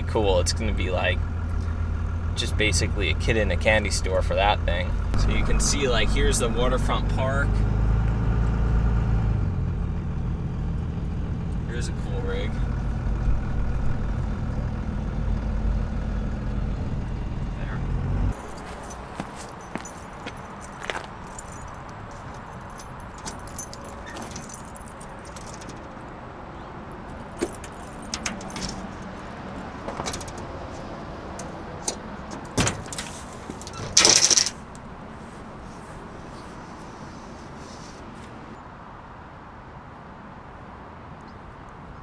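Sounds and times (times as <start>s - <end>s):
outdoor background hum: 0.0s - 38.7s
metal gear clinking: 18.4s - 25.9s, 27.3s - 29.2s, 33.6s - 34.6s.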